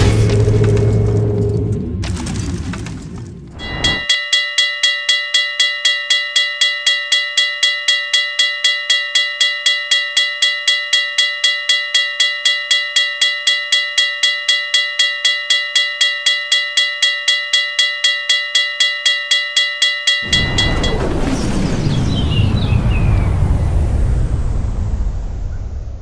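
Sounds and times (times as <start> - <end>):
railroad crossing bell ringing: 3.6 - 21.3.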